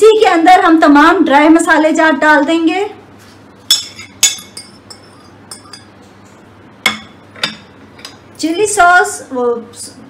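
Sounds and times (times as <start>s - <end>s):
glass lid clinking: 3.7s - 5.9s.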